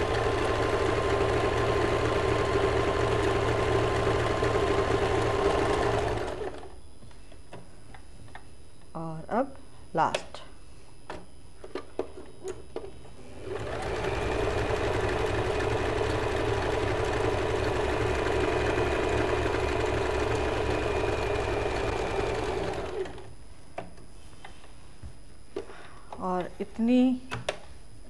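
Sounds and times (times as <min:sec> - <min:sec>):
sewing machine running: 0:00.0 - 0:06.7, 0:13.3 - 0:23.3.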